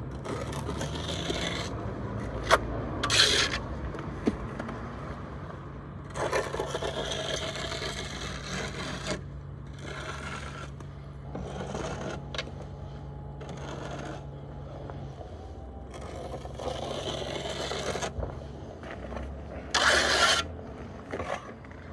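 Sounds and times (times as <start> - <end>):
wooden edge scraping render: 0.0 - 3.7, 6.1 - 21.9
steady low hum: 5.4 - 21.9.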